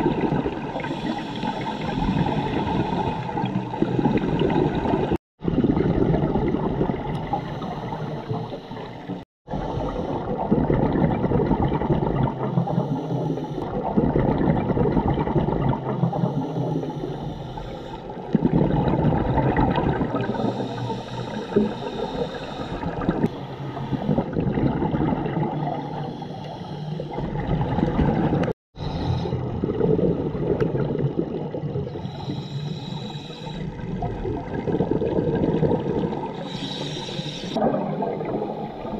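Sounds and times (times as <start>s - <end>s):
exhaled bubbles gurgling: 0.0s - 38.9s
diver breathing through regulator: 0.8s - 4.6s, 16.0s - 18.2s, 20.1s - 24.4s, 25.6s - 27.6s, 28.8s - 29.5s, 31.9s - 33.8s, 36.3s - 37.6s.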